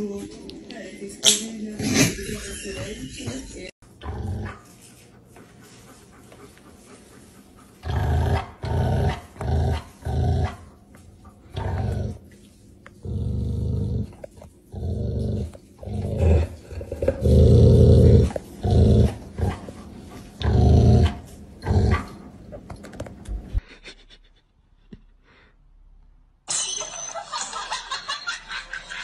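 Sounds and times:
dog growling: 4.0 - 4.7, 7.6 - 10.8, 11.4 - 12.2, 13.0 - 22.6.

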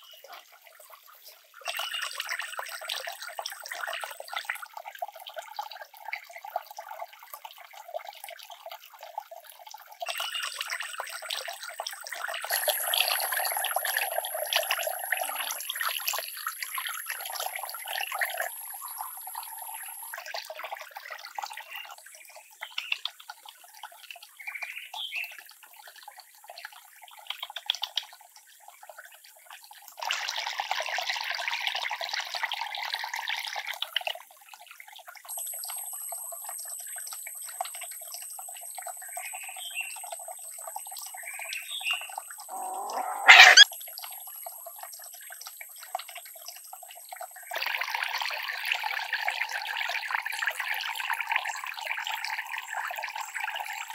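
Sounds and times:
water splashing from fountain: 0.0 - 35.8, 36.5 - 53.9
puppies whimpering: 42.5 - 43.6
puppy yelping: 42.5 - 43.7.

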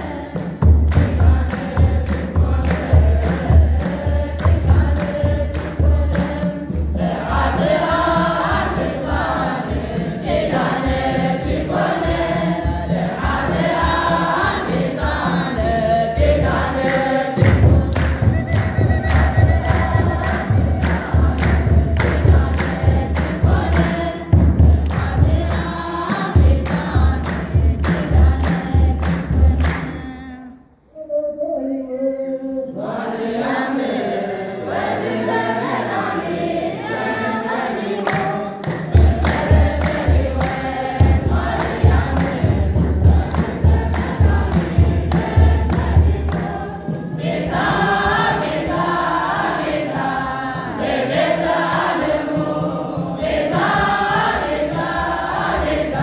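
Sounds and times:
choir singing a hymn: 0.0 - 30.4, 32.6 - 56.0
hand-clapping: 0.3 - 7.8, 16.7 - 30.0, 37.8 - 48.3.

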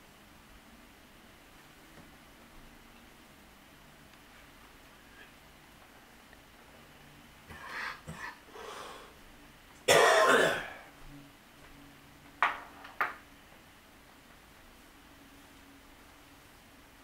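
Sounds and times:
person clearing throat: 9.9 - 10.8
person coughing: 9.9 - 10.8.

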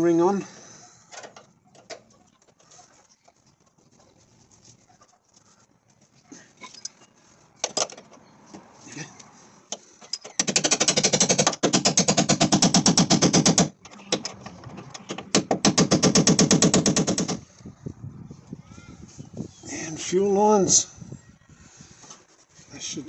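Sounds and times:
rapid metal hammering: 10.4 - 13.7, 15.3 - 17.4.

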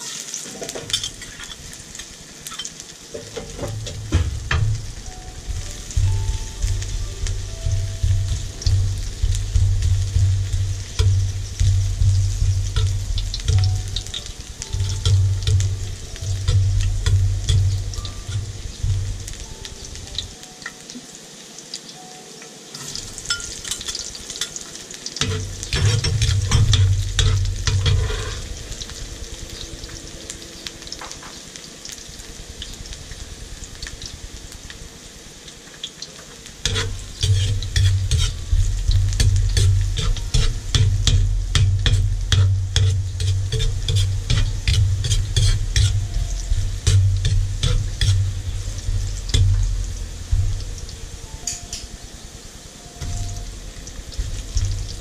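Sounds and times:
oil sizzling in a wok: 0.0 - 55.0
ladle scraping a wok: 0.2 - 19.4, 22.8 - 28.8, 36.6 - 50.7
loud low rumble: 3.5 - 20.4, 36.7 - 51.4
ladle clinking against wok: 22.8 - 24.6.

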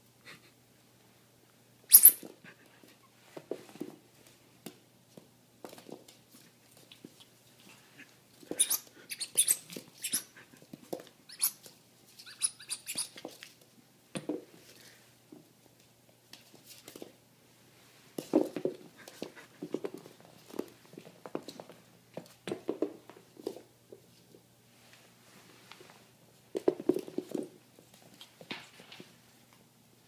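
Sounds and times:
squeak toy squeaking: 1.9 - 2.3, 8.6 - 10.3, 11.3 - 11.6, 12.2 - 13.2
puppy play noises: 6.3 - 13.6.

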